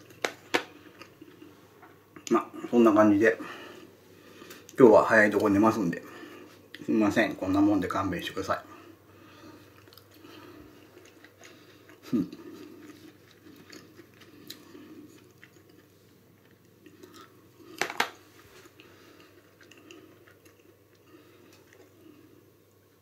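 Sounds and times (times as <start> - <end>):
man chewing meat: 0.0 - 2.3, 8.8 - 23.0
soft mouth sounds: 9.6 - 15.9.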